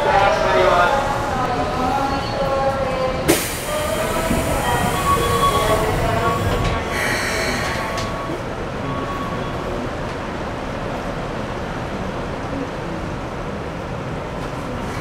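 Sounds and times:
train doors sliding shut: 2.7s - 9.0s.

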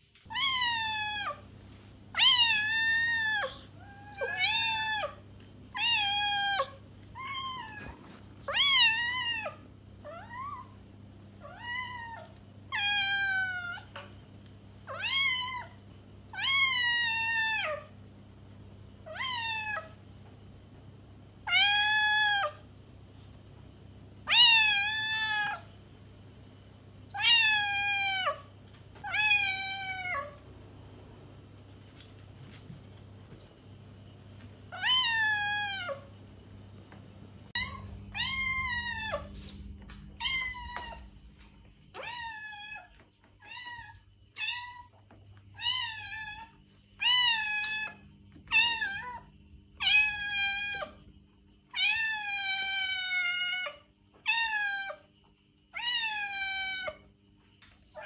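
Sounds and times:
faint low hum: 0.0s - 58.0s
cat meowing: 0.3s - 1.4s, 2.1s - 10.8s, 11.4s - 14.1s, 14.9s - 17.9s, 24.2s - 25.7s, 27.1s - 30.4s, 34.7s - 36.1s, 37.5s - 39.5s, 40.2s - 41.1s.

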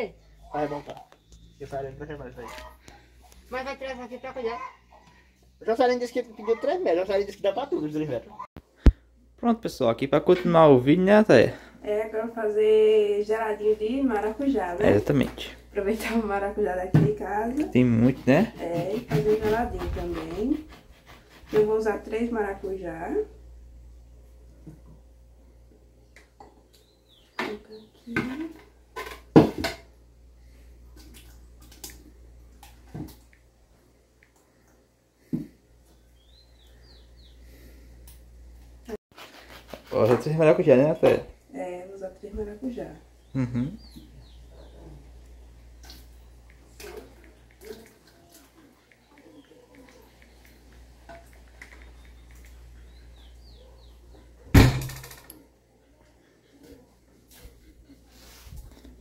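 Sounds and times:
spoon scraping plastic jug: 17.8s - 21.8s
loud knock with rattle: 54.5s - 55.3s.

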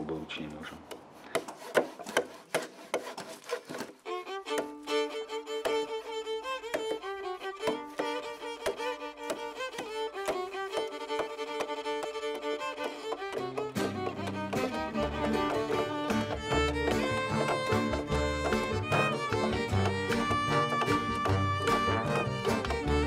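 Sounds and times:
axe chopping timber: 0.9s - 4.8s, 6.7s - 7.0s, 7.6s - 23.0s
fiddle music: 4.0s - 23.0s.

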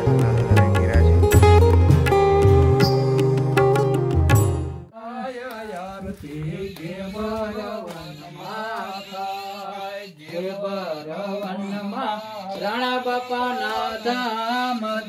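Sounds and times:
sitar music: 0.0s - 4.9s
person singing devotional song: 4.9s - 15.0s.

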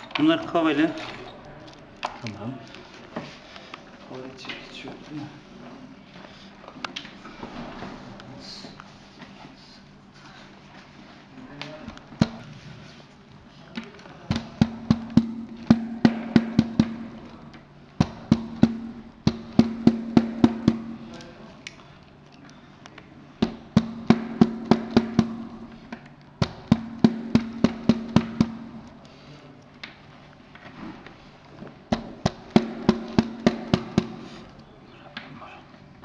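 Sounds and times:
wooden dowels tapped into holes: 13.8s - 17.3s, 18.0s - 21.3s, 23.4s - 28.9s, 31.9s - 34.6s.

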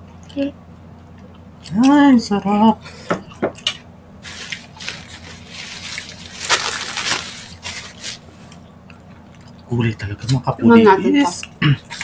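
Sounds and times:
wet squishy food handling: 4.2s - 10.4s.

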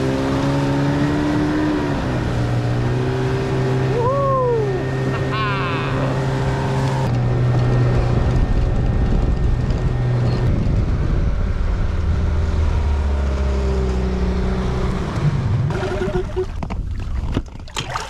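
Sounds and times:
outboard motor running: 2.2s - 11.3s, 15.7s - 18.0s.

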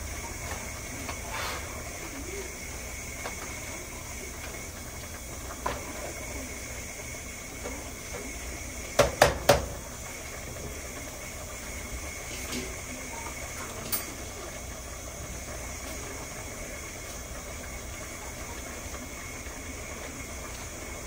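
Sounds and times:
kitchen utensils clanking: 13.6s - 14.2s.

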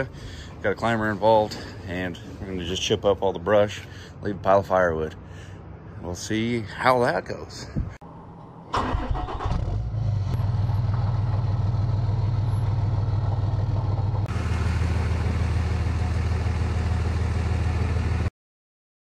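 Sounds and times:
diesel truck engine idling: 10.1s - 18.3s.

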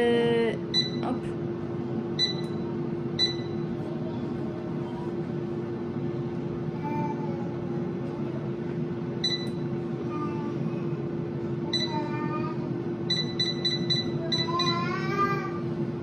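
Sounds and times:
steady hum: 0.0s - 16.0s
control panel beeps: 0.7s - 1.1s, 2.2s - 3.7s, 9.2s - 9.6s, 11.7s - 11.9s, 13.1s - 14.8s.

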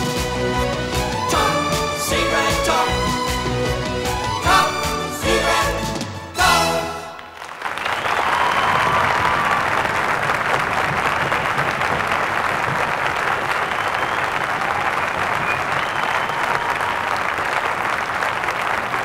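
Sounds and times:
audience applauding: 6.9s - 19.0s.

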